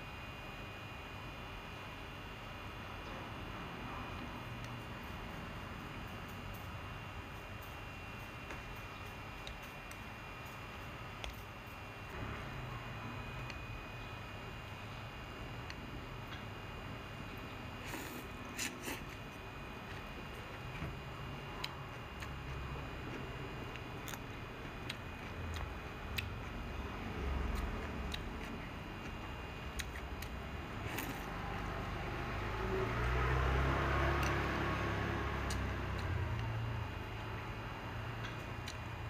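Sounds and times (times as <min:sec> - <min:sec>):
chewing and slurping noodles: 0:21.6 - 0:31.8.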